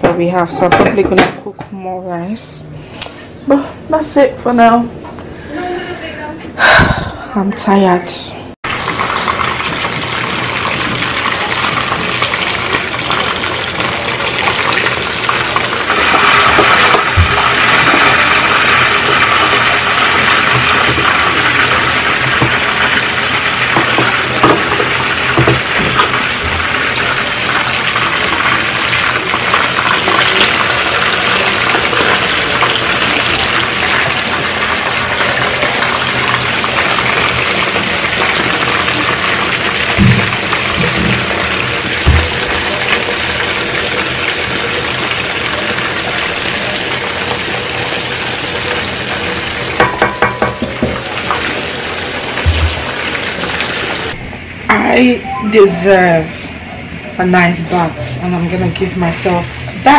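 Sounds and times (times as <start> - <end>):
chicken frying in hot oil: 8.6 - 54.2
knocks against pan: 49.8 - 51.1, 52.4 - 53.0.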